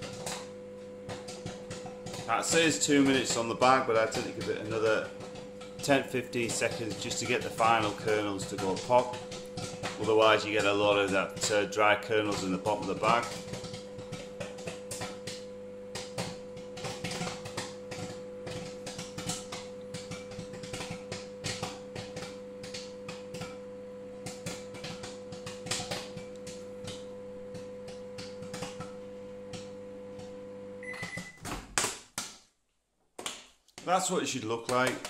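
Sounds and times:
microwave oven humming: 0.0s - 31.5s
popcorn popping: 0.0s - 35.0s
microwave beeping: 30.8s - 31.5s.

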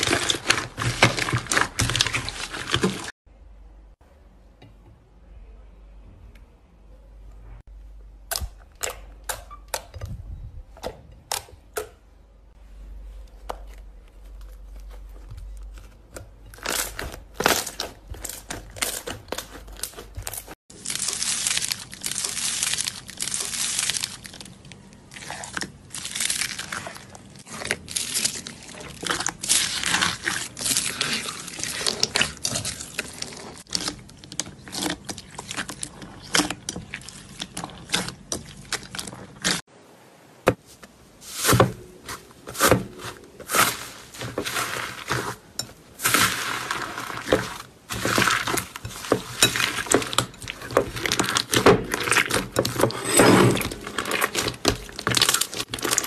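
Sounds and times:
hands squishing crunchy slime: 0.0s - 3.2s, 13.3s - 39.7s, 41.2s - 52.9s, 53.6s - 56.0s.

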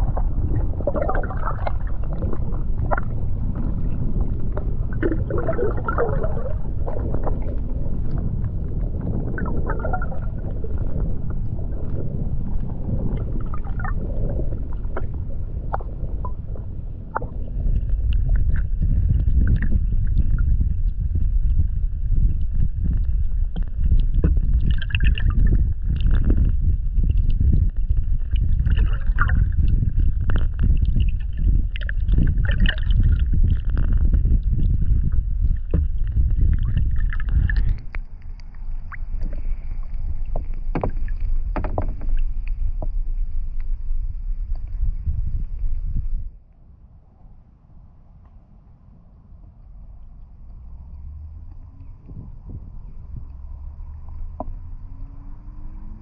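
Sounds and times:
paddle splashes: 0.0s - 3.8s, 35.4s - 43.2s
water slapping hull: 0.0s - 43.8s
heavy low rumble: 0.0s - 56.0s.

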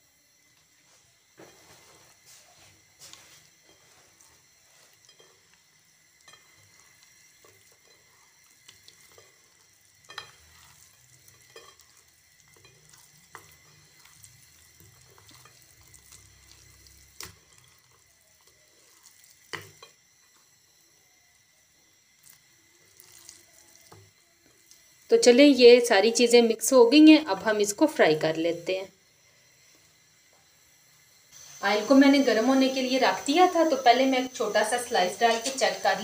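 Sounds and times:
hands mixing wet food: 1.5s - 20.5s, 22.1s - 25.2s.

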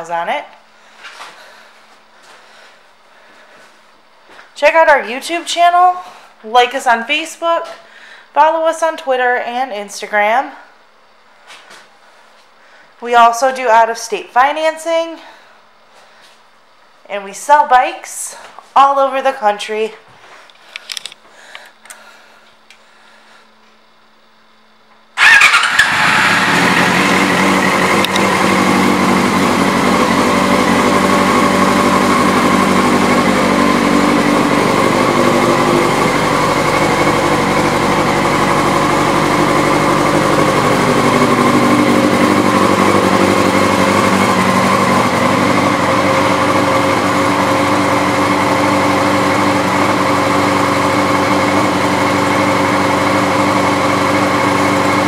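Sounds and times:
motorcycle engine starting and idling: 25.2s - 55.0s.

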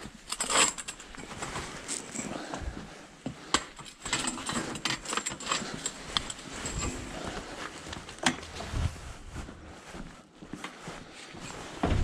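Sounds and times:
metal tube frames clicking and knocking: 3.5s - 7.0s.

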